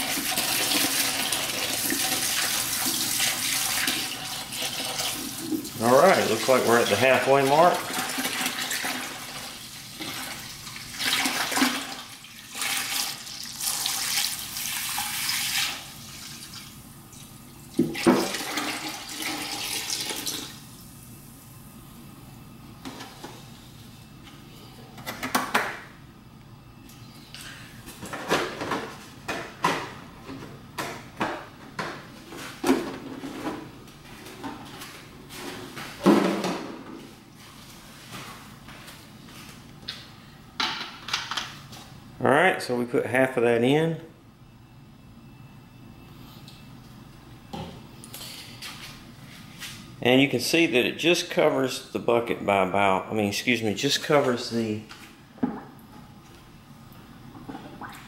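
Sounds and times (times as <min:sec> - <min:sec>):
water splashing into bucket: 0:00.0 - 0:16.7, 0:17.8 - 0:20.6, 0:57.7 - 0:58.0.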